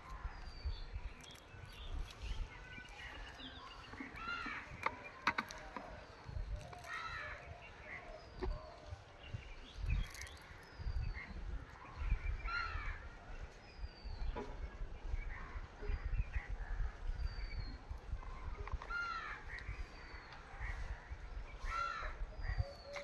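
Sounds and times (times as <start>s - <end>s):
birds cawing: 4.0s - 6.0s, 6.6s - 8.2s, 12.4s - 13.1s, 18.8s - 21.0s, 21.6s - 23.0s.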